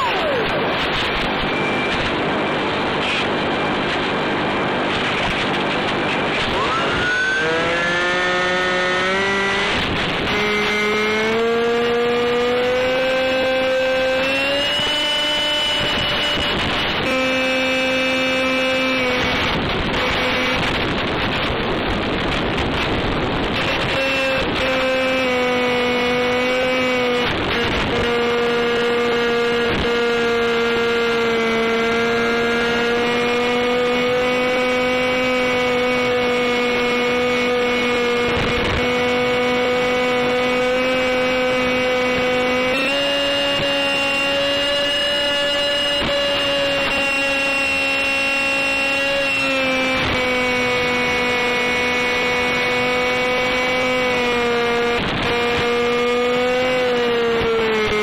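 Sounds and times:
electric motor and propeller whining: 0.0s - 58.0s
wind rush: 19.0s - 24.6s.

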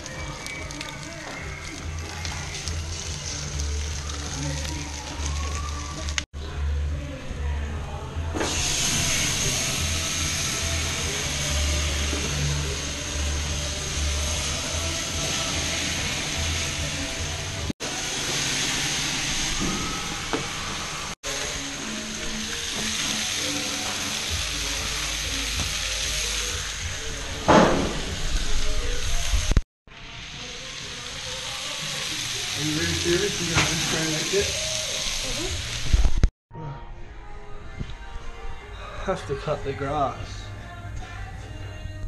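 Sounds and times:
food sizzling on a grill: 0.0s - 6.2s, 8.4s - 36.3s
background music with bass line: 0.0s - 17.7s, 21.3s - 29.6s.

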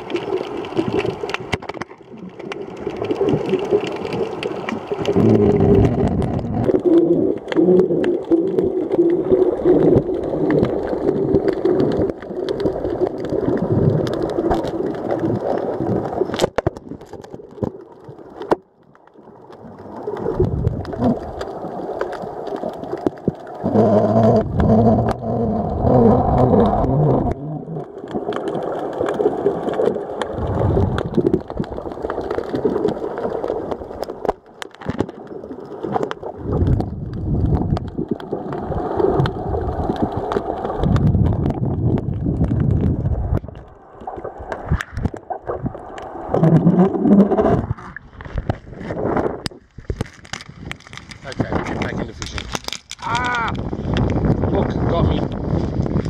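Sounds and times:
muffled underwater noise: 0.0s - 15.8s, 19.9s - 33.7s, 50.9s - 55.7s.

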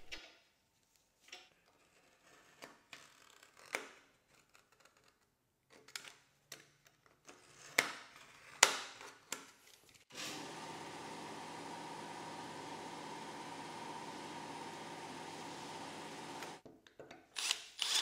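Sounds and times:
clicks and snips cutting rubber: 2.3s - 9.6s.

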